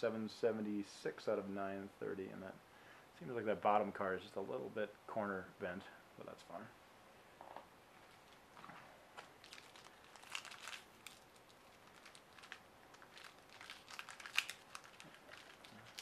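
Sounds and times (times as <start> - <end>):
foil wrapper crinkling: 8.0 - 8.5, 9.2 - 16.0.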